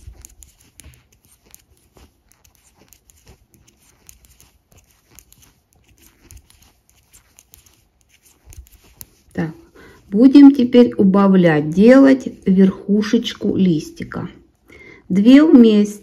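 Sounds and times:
knitting needles clicking: 0.0 - 9.5.

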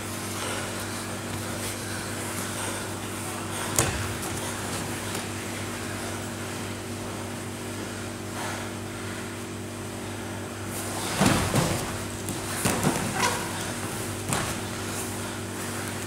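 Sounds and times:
electrical hum: 0.0 - 16.0
thuds and rustling on mat: 3.6 - 5.4, 10.8 - 15.0.

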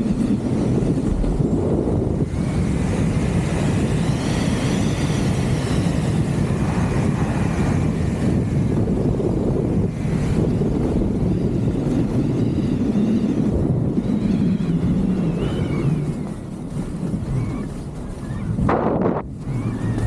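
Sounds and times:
wind buffeting microphone: 0.0 - 20.0
faint wavering whistle: 10.4 - 16.5, 19.4 - 20.0
skis sliding over snow: 12.9 - 20.0.

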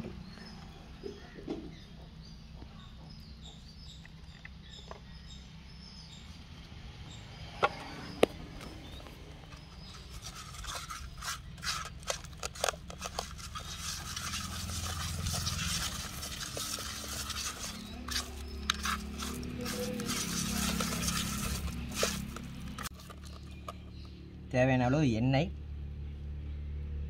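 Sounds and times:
fingers scraping paste in pot: 8.6 - 23.9.

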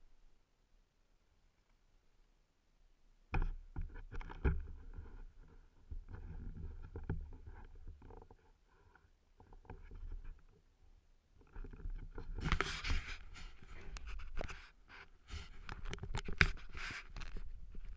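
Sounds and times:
rustles and dull knocks on helmet: 3.3 - 8.5.

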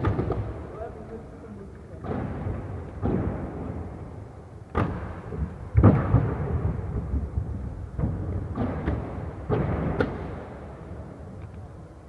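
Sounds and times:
skate wheels rumbling on floor: 0.0 - 12.0.

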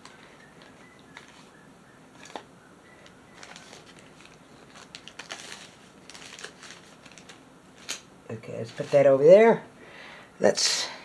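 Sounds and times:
packaging rustling: 0.0 - 9.2.

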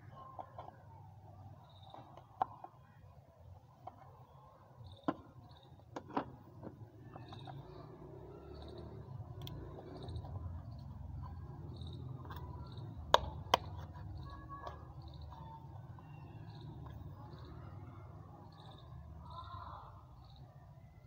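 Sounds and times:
sharp plastic clicks: 11.8 - 15.4.

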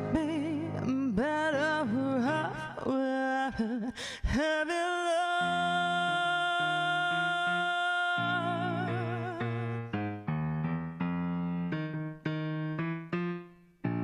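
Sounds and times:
digital piano chords: 0.0 - 2.7, 8.2 - 14.0
woman singing a long note: 0.0 - 9.8.

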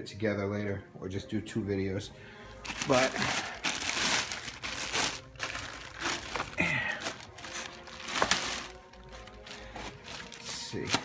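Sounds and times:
plastic bag crinkling: 2.6 - 11.0.

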